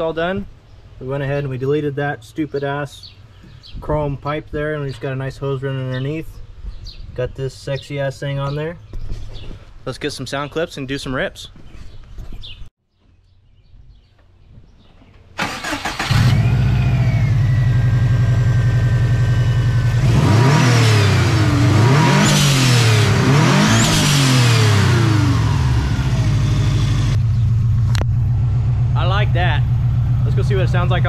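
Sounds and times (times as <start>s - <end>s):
car engine cranking: 15.4s - 17.7s, 19.8s - 28.5s
car engine idling: 15.4s - 20.4s, 24.8s - 31.0s
car engine revving: 15.4s - 31.0s.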